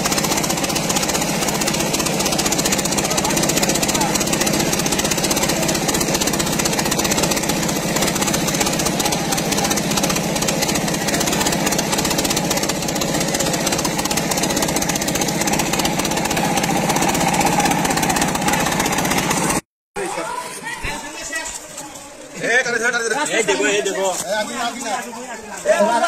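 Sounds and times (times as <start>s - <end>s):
small diesel engine running: 0.0s - 19.7s.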